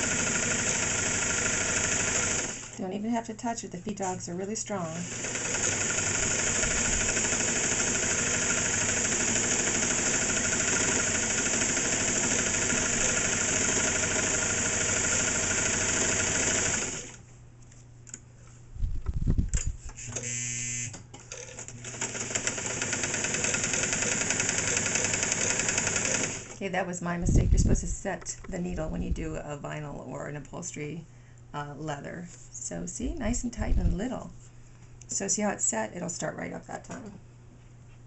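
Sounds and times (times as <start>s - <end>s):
sewing machine running: 0.0s - 2.8s, 4.8s - 17.2s, 20.0s - 26.6s.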